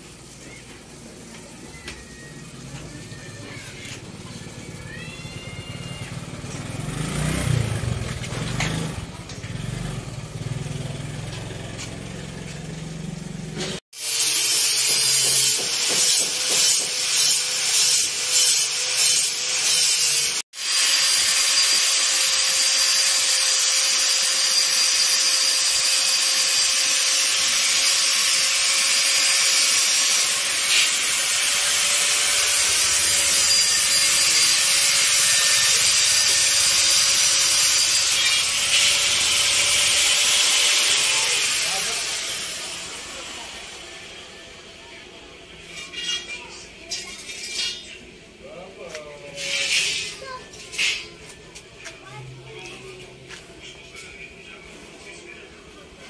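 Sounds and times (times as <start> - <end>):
angle grinder cutting steel: 13.5 - 44.7.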